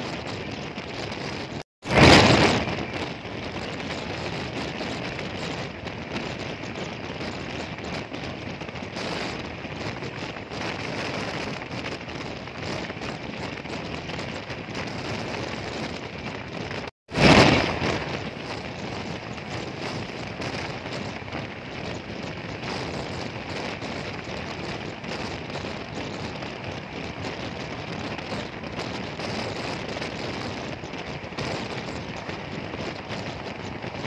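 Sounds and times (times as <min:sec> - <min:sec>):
freight train wheels rumbling: 0:00.0 - 0:34.0
sudden loud burst: 0:01.8 - 0:03.0, 0:17.1 - 0:18.8.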